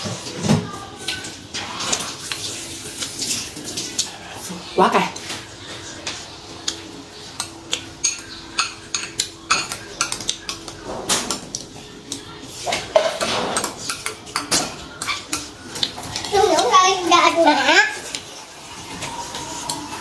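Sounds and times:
metal spoon clinking glass bowl: 7.4 - 10.6.

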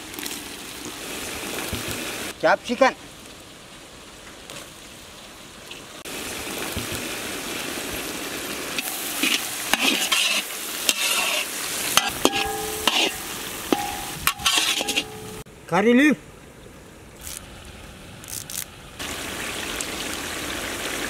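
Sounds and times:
vegetables sizzling in hot oil: 6.1 - 15.3
metal spatula scraping a wok: 8.8 - 15.4.

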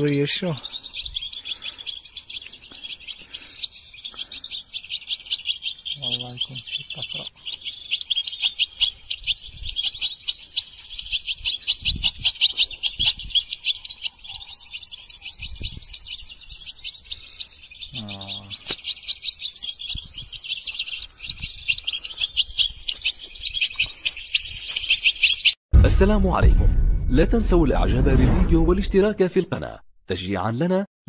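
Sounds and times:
finches twittering: 0.0 - 25.6
soft low thumps: 25.7 - 29.2.

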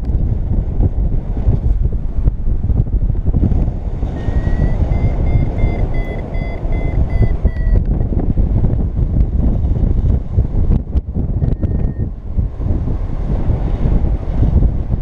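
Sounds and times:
wind rushing over microphone: 0.0 - 15.0
variometer beeping: 4.2 - 8.1, 11.4 - 12.1.

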